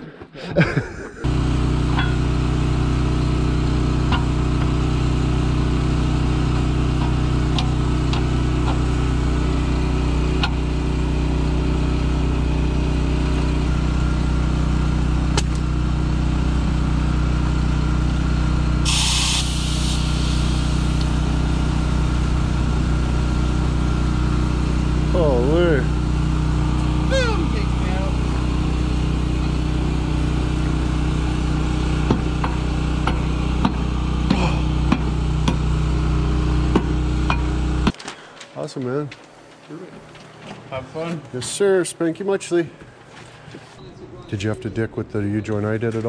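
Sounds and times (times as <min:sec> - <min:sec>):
engine idling: 0:01.2 - 0:38.0
short hiss: 0:18.9 - 0:20.8.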